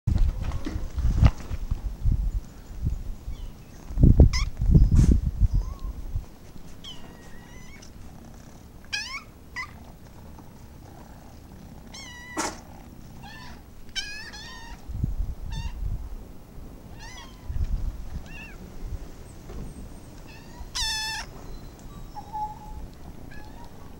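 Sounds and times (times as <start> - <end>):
kittens meowing: 6.8 - 8.0, 8.9 - 9.9, 11.8 - 14.9, 15.5 - 15.8, 16.9 - 18.6, 20.2 - 23.9
low rumbling noise: 14.7 - 23.9.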